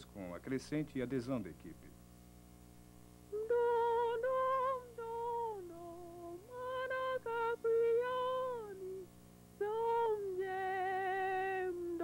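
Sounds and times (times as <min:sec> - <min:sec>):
woman singing slow melody: 0:03.3 - 0:12.0.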